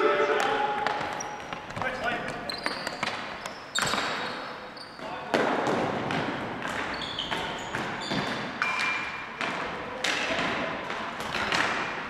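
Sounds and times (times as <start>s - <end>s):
sneaker squeaks: 0.4s - 5.3s, 6.2s - 9.4s.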